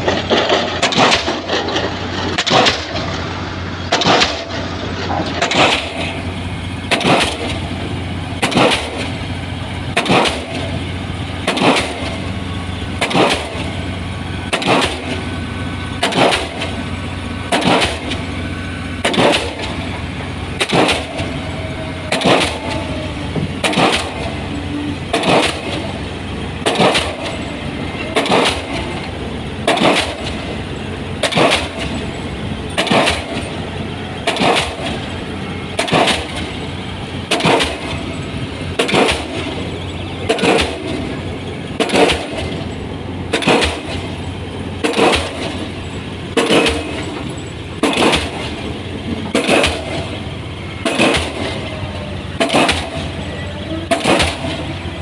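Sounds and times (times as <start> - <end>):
pile hammer banging: 0.0 - 3.2, 3.9 - 7.7, 8.4 - 9.2, 9.9 - 10.8, 11.4 - 12.3, 13.0 - 13.8, 14.5 - 15.3, 16.0 - 18.4, 19.0 - 19.9, 20.6 - 30.6, 31.2 - 33.6, 34.2 - 35.2, 35.8 - 36.6, 37.3 - 41.2, 41.8 - 44.2, 44.8 - 50.2, 50.8 - 54.7
low engine drone: 0.0 - 55.0.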